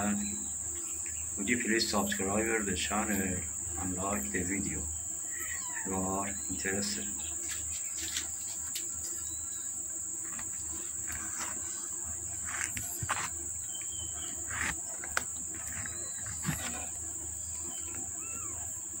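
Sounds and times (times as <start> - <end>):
high-pitched insect drone: 0.0 - 19.0.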